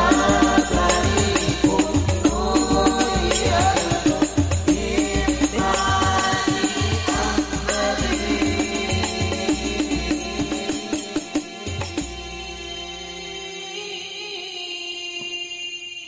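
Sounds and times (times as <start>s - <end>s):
bass drum beating: 0.0s - 11.0s
hand drums: 0.0s - 12.2s
men singing into microphones: 0.0s - 16.0s.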